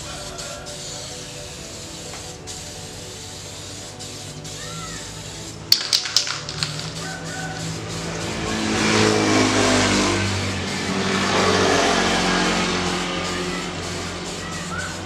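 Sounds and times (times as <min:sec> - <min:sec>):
aerosol spray can hissing: 0:00.0 - 0:15.0
vehicle engine passing: 0:05.0 - 0:15.0.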